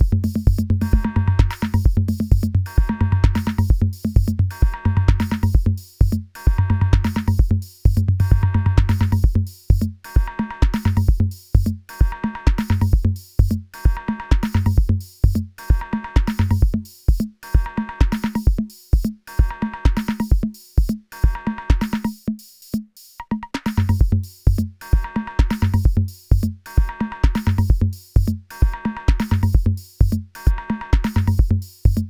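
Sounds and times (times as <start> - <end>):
electronic music with drum beat: 0.0 - 32.0.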